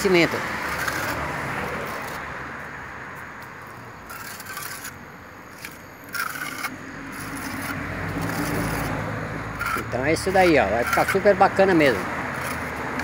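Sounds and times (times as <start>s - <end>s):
sponge float scraping plaster: 0.7s - 1.2s, 4.1s - 9.0s, 9.6s - 12.7s.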